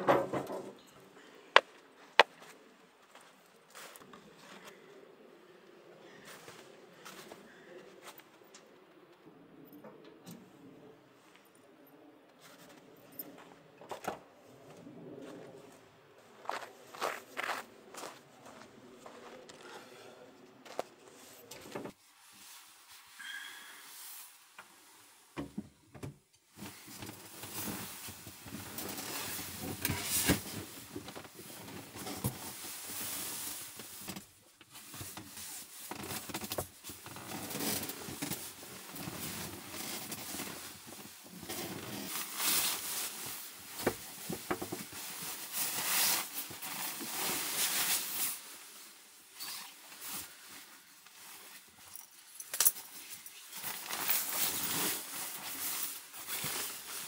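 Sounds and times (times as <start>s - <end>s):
fabric rustling: 53.5s - 57.0s.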